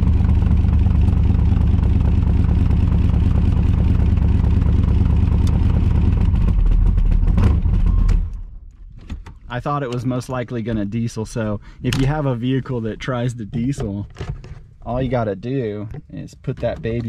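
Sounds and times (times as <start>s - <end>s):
car engine idling: 0.0s - 7.9s.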